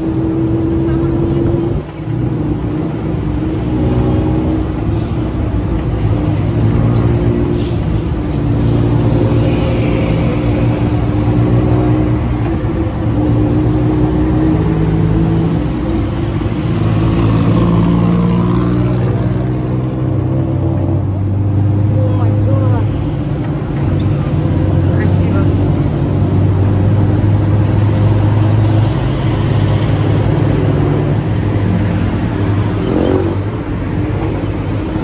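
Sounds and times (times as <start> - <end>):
tuk-tuk engine running: 0.0 - 35.0
wind and road noise: 0.0 - 35.0.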